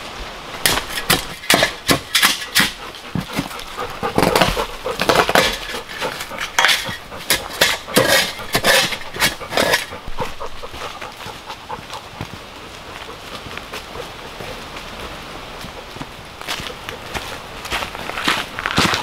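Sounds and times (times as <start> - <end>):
stones knocking and scraping: 0.6 - 12.4.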